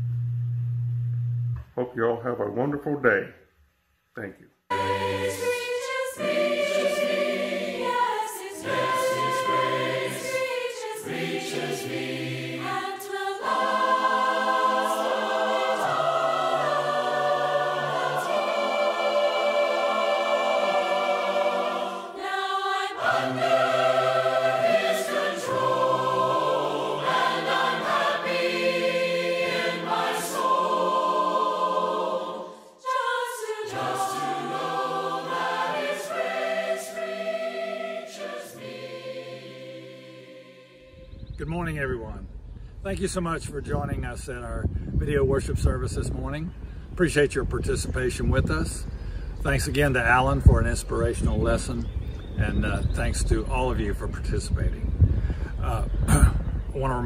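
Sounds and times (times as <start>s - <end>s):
choir singing a hymn: 4.7s - 41.4s.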